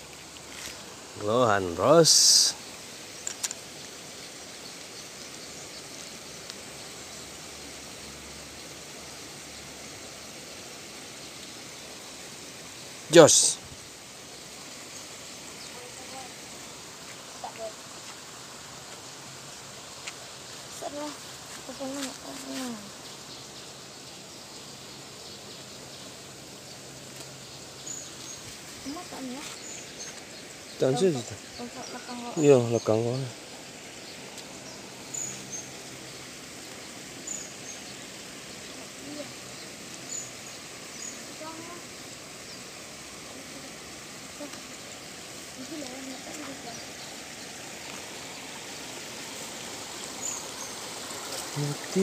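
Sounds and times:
steady outdoor hiss: 0.0 - 52.0
sharp clicks: 3.2 - 3.7.

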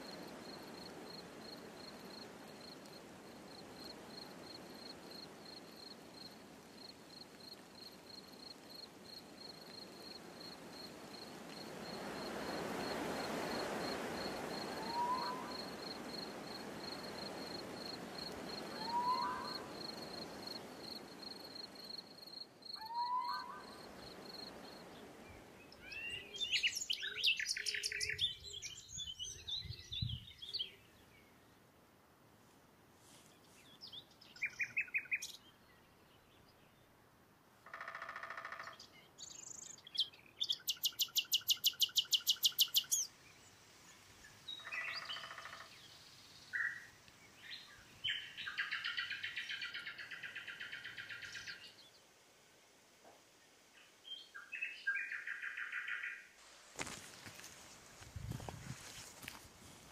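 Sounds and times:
faint forest background: 0.0 - 59.9
bird trill: 18.8 - 19.6, 22.8 - 23.7.

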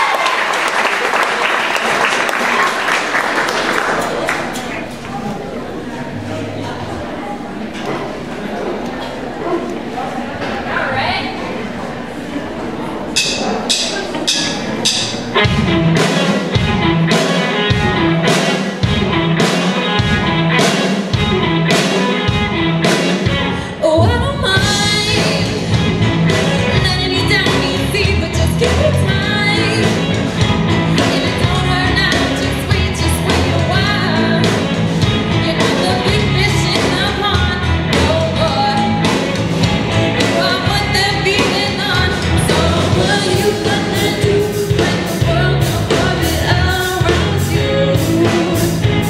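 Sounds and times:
live rock band with singers: 13.2 - 49.0.

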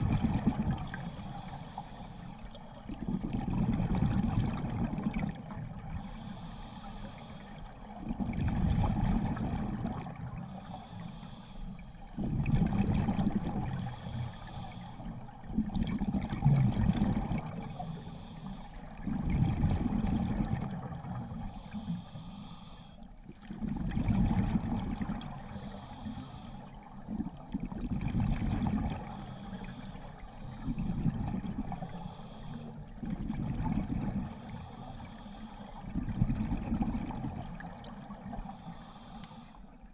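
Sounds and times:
exhaled bubbles gurgling: 0.0 - 11.1, 12.0 - 22.2, 23.2 - 39.0
regulator inhale hiss: 0.7 - 3.2, 5.9 - 8.0, 10.3 - 12.2, 13.6 - 15.7, 17.4 - 19.0, 21.1 - 23.2, 25.3 - 26.9, 29.0 - 33.0, 34.2 - 35.9, 38.2 - 39.9.

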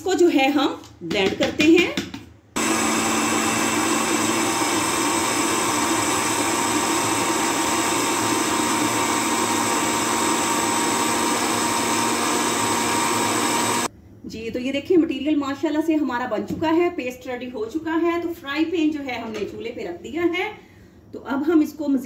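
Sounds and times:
countertop blender running: 2.6 - 13.9.

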